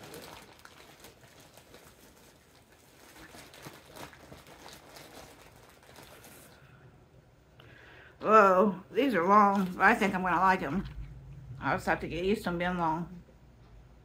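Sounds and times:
plastic packaging crinkling: 0.0s - 6.8s, 9.3s - 11.0s.

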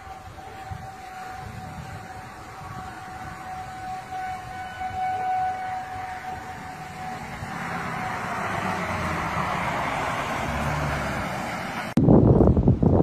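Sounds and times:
truck passing on road: 0.0s - 12.0s
warning siren steady tone: 0.0s - 12.0s.

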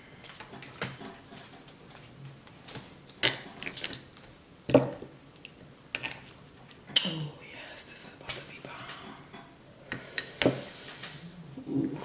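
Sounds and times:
wet squishes: 1.6s - 4.6s, 5.3s - 7.3s.

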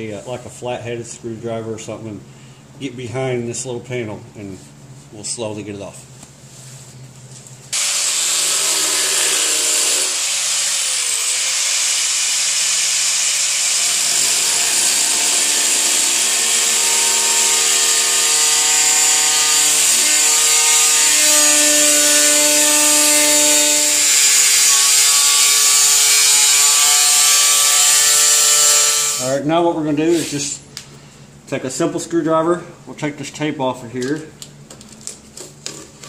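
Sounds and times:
angle grinder cutting metal: 7.8s - 29.3s.

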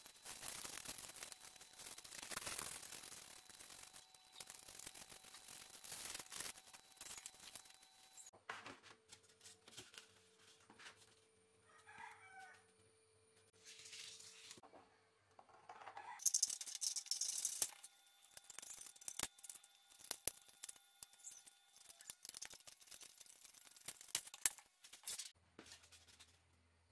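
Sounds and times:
rooster crowing: 11.6s - 12.7s.

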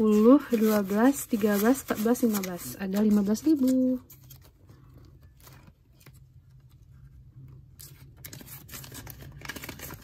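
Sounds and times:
paper banknotes rustling: 0.0s - 4.6s, 7.8s - 10.0s.

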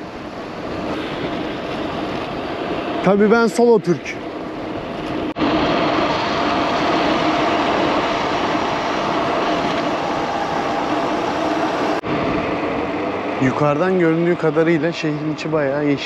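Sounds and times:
bicycle tyre hum: 0.0s - 16.0s
rushing wind and road noise: 0.0s - 16.0s.

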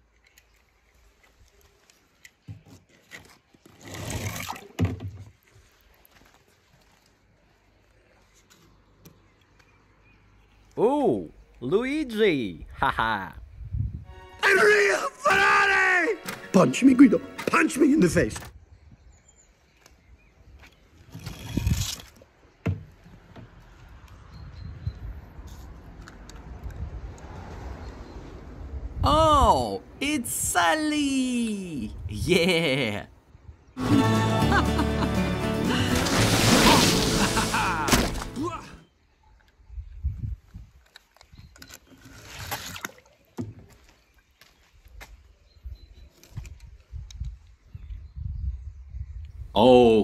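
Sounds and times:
wind rumble on microphone: 13.4s - 14.1s, 24.2s - 29.4s, 39.6s - 41.6s, 45.6s - 49.6s.

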